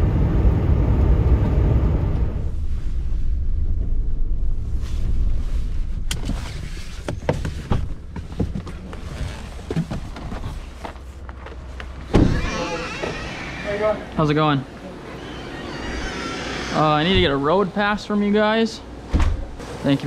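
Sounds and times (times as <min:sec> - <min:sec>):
engine and road rumble: 0:00.0 - 0:19.9
car door opening: 0:12.0 - 0:13.9.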